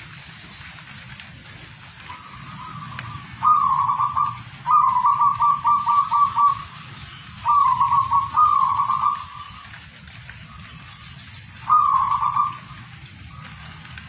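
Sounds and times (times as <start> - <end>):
dove cooing: 2.0 - 9.8, 11.6 - 14.0.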